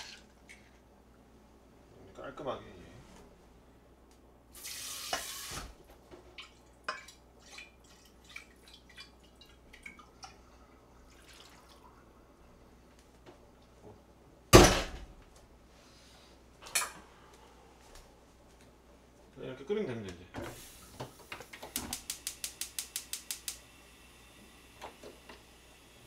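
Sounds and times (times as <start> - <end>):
kitchen tap running: 4.5 - 5.8, 20.6 - 26.0
water drips: 6.3 - 12.0.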